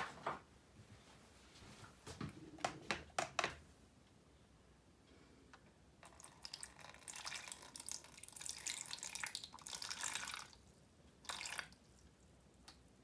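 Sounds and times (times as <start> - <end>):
water pouring into plastic tub: 6.0 - 12.0.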